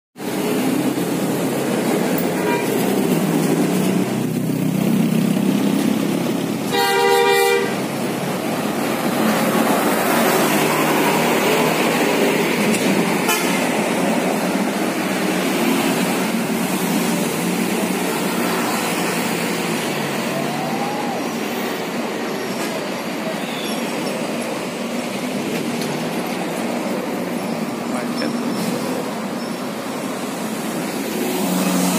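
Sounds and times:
heavy highway traffic rumble: 0.2s - 31.9s
car horn blast: 2.3s - 2.8s, 6.7s - 7.8s, 13.2s - 13.7s.

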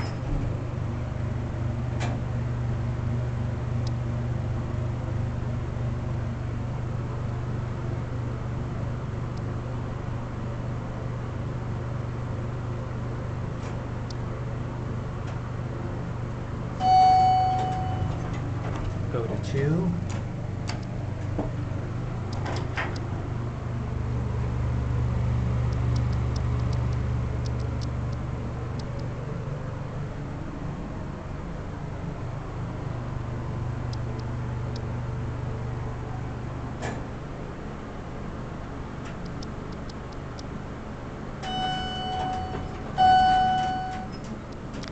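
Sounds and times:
elevator pump motor humming: 0.0s - 44.9s
elevator chime: 16.8s - 18.4s, 41.4s - 44.3s.

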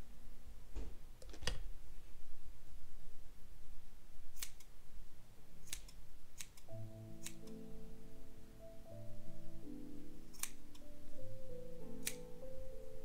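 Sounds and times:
scissors snipping: 4.4s - 4.7s, 5.6s - 7.6s, 10.3s - 10.9s, 12.0s - 12.3s
soft music with mallet notes: 6.7s - 13.0s.

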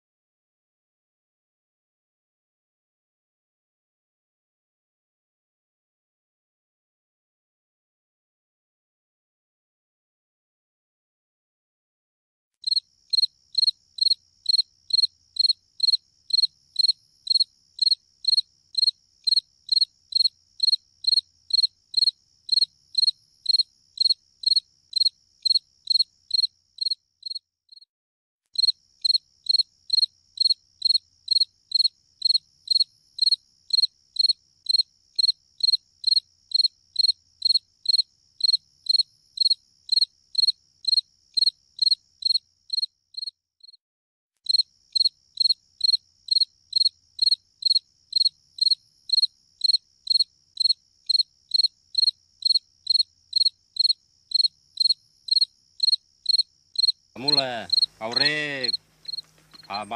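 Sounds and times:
cricket chirping: 12.6s - 27.9s, 28.6s - 43.8s, 44.4s - 59.9s.

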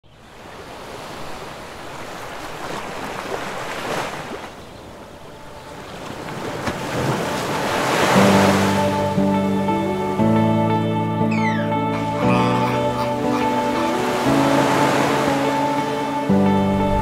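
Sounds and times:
ocean waves washing in: 0.1s - 17.0s
music: 8.1s - 17.0s.

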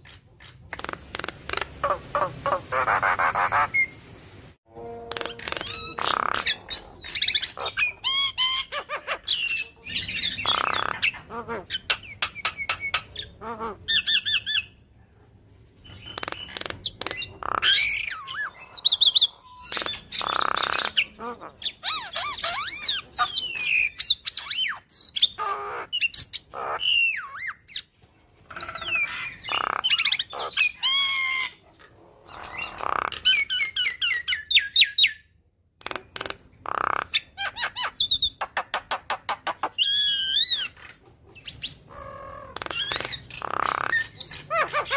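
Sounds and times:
bird harsh squawks: 0.0s - 4.0s, 5.1s - 14.8s, 16.0s - 27.8s, 28.6s - 31.7s, 36.2s - 44.9s
myna chattering and whistling: 5.1s - 14.4s.

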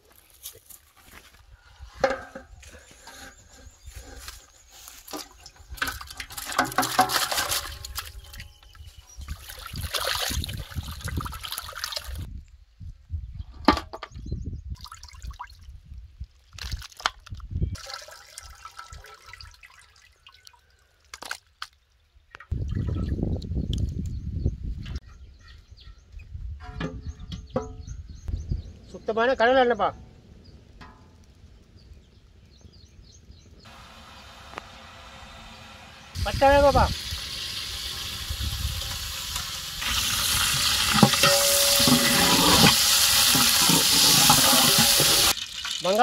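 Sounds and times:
water splashing and trickling: 3.0s - 12.3s, 14.7s - 23.9s, 36.1s - 46.0s.

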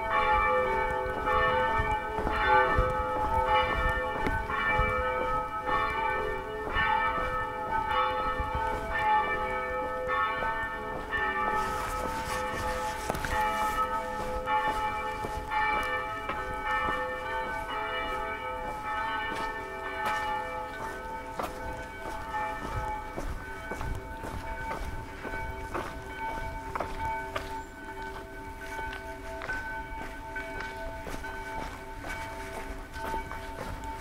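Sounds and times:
church bells pealing: 0.0s - 34.0s.

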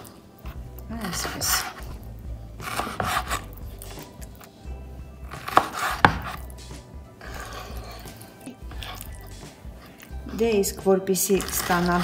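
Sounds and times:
knife slicing meat: 1.0s - 2.0s, 2.6s - 4.0s, 5.2s - 6.6s, 7.2s - 9.1s, 11.3s - 12.0s.

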